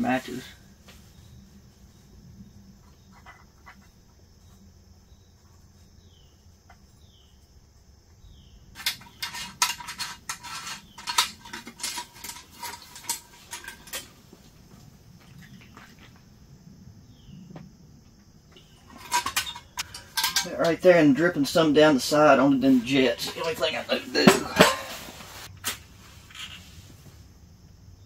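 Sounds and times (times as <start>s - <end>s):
metal clicks and clinks: 8.8s - 14.1s, 18.6s - 20.8s.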